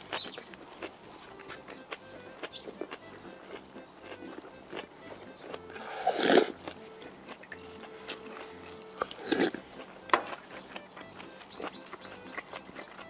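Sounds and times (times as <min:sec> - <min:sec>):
person chewing and biting: 0:00.0 - 0:13.0.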